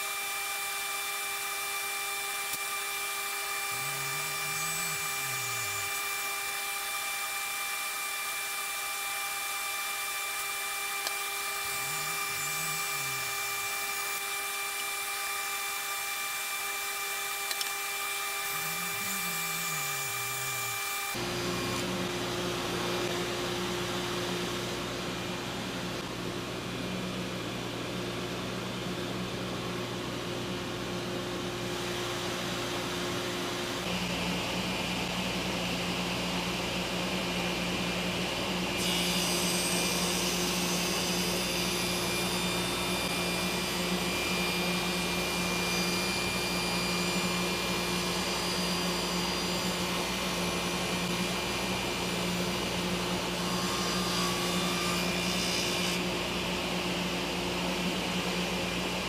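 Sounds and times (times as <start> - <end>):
saw blade cutting wood: 0.0 - 21.9, 38.8 - 51.1
table saw running: 0.0 - 26.0, 31.4 - 59.0.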